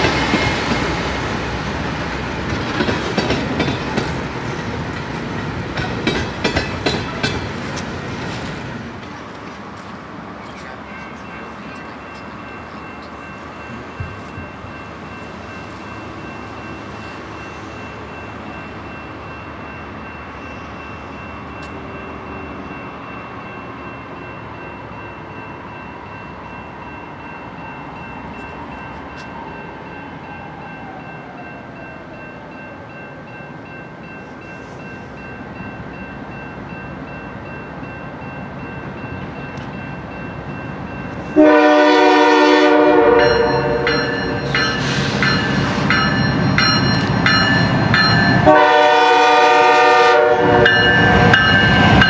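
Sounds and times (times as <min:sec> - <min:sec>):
diesel locomotives rumbling: 0:00.0 - 0:52.0
locomotive air horn blast: 0:41.4 - 0:43.9, 0:48.4 - 0:50.7.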